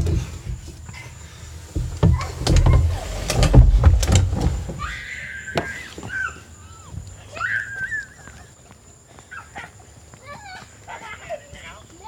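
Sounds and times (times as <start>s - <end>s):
body rubbing along plastic slide: 0.0s - 6.2s.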